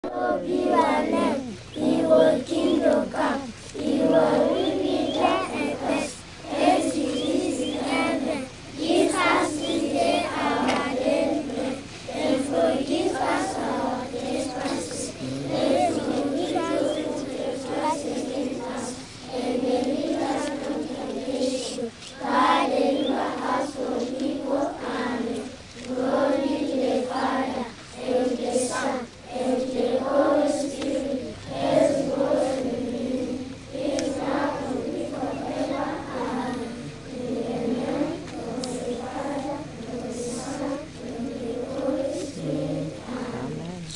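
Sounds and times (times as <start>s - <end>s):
children praying aloud in unison: 0.0s - 43.9s.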